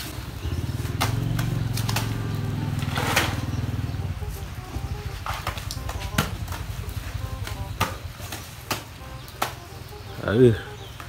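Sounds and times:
small engine running: 0:00.0 - 0:08.1
sharp cracks: 0:00.8 - 0:03.6, 0:05.4 - 0:10.0.

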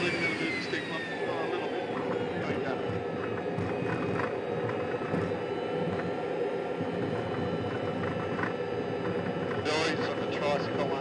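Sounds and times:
jet engine rushing: 0:00.0 - 0:11.0.

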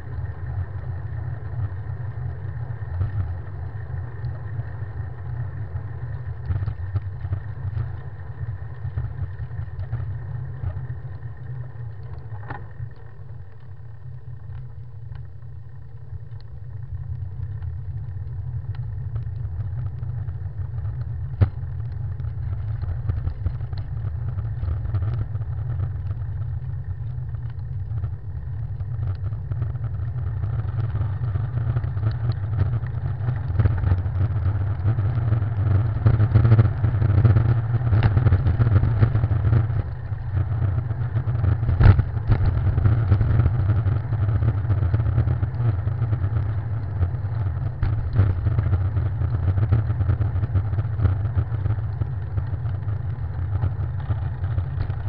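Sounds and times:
road rumble: 0:00.0 - 0:55.0
bike rattling: 0:16.6 - 0:55.0.

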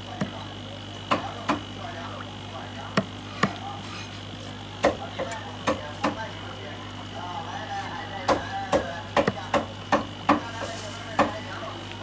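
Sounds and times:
steady low hum: 0:00.0 - 0:12.0
knife chopping on wooden block: 0:08.3 - 0:10.5.

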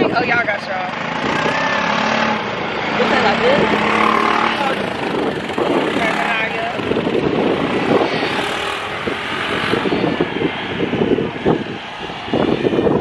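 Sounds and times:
off-road vehicle engines rumbling: 0:00.0 - 0:13.0.

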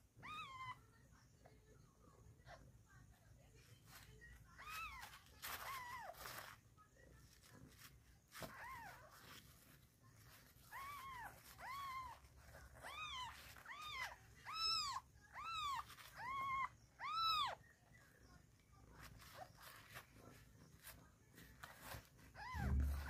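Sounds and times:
kitten mewing: 0:22.4 - 0:23.0.

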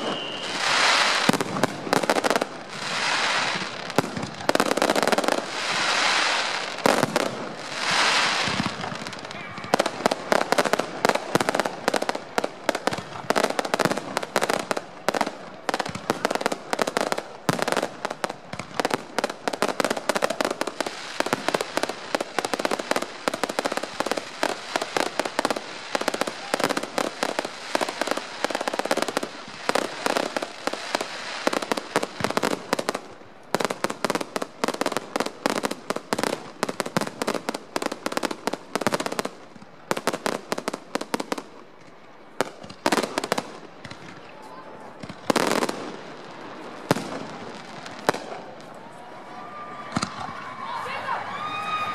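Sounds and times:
background noise: 0:00.0 - 0:51.9
fireworks bangs: 0:00.0 - 0:51.9.

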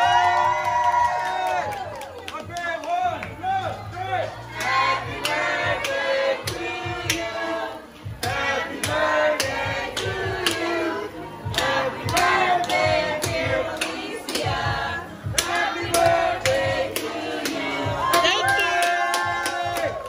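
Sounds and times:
group singing a celebration song: 0:04.2 - 0:20.0
hand clapping in time: 0:11.5 - 0:14.5, 0:15.4 - 0:20.0.

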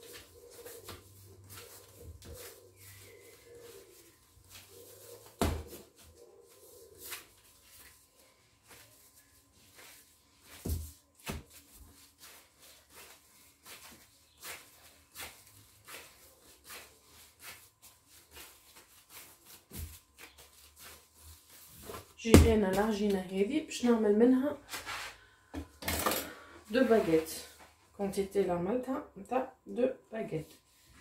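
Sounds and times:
dough kneaded by hand: 0:00.0 - 0:25.2.

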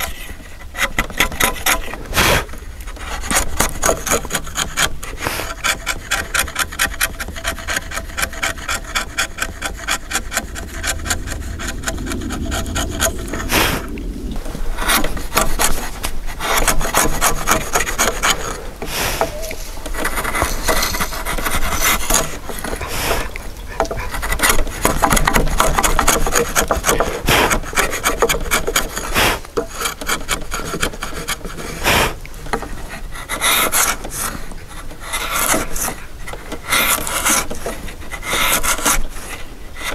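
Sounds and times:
chisel paring wood: 0:03.3 - 0:10.9, 0:23.8 - 0:31.8.

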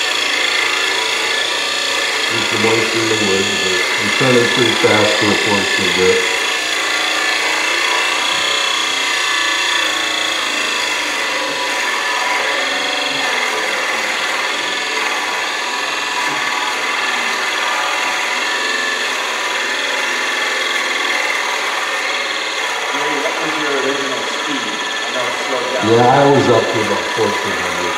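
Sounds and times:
drill bit boring into wood: 0:00.0 - 0:27.9
lathe motor hum: 0:00.0 - 0:27.9.

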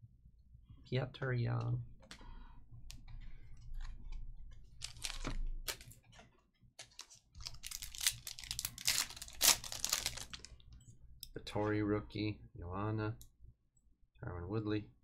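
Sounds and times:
foil wrapper crackling: 0:04.8 - 0:05.9, 0:06.8 - 0:10.6.

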